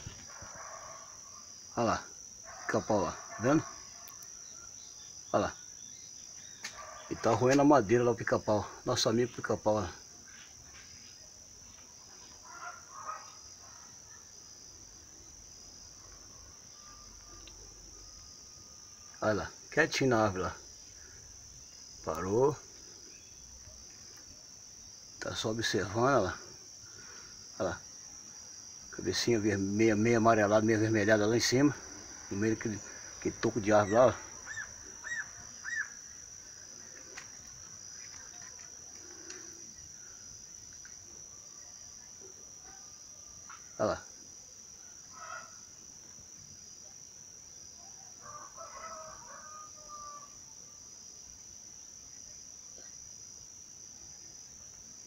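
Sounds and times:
high-pitched insect chorus: 0.0s - 55.0s
bird chirps: 33.7s - 36.0s
faint ticks: 36.9s - 39.6s, 40.6s - 41.1s.

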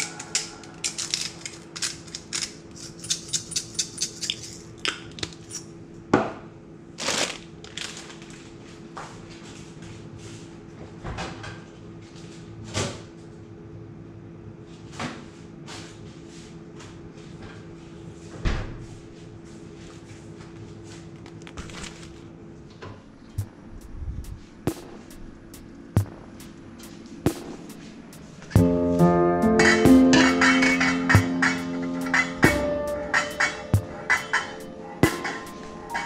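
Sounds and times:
steady low hum: 22.3s - 36.0s
doors and kitchen items clunking: 28.6s - 36.0s.

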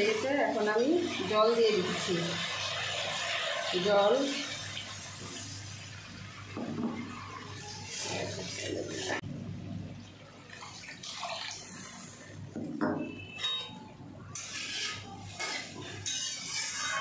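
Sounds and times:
metal spatula scraping a pan: 7.1s - 9.2s, 13.1s - 17.0s
liquid sloshing in a pan: 14.3s - 17.0s.

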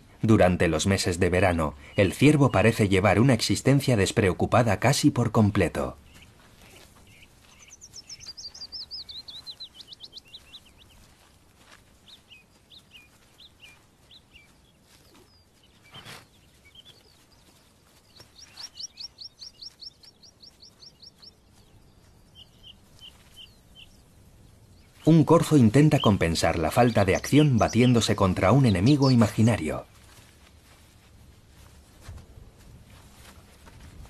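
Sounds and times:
songbird trilling: 6.1s - 11.0s, 12.0s - 24.0s, 24.8s - 29.6s
short bird chirps: 15.1s - 17.1s.

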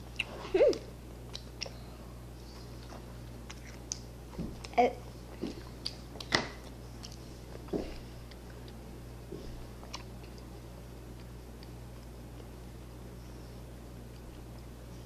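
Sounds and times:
person chewing with mouth open: 0.0s - 2.0s, 2.7s - 4.1s, 5.3s - 8.8s, 9.7s - 10.5s
low steady hum: 0.0s - 15.0s.

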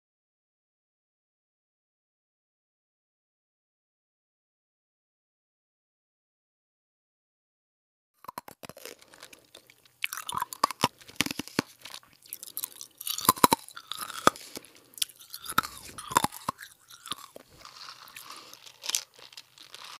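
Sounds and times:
dog chewing and crunching food: 8.2s - 20.0s.

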